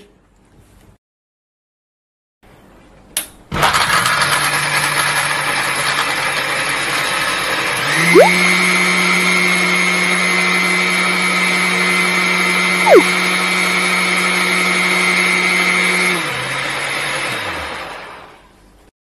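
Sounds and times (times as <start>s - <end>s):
mixer grinder motor grinding ice: 3.6s - 18.5s.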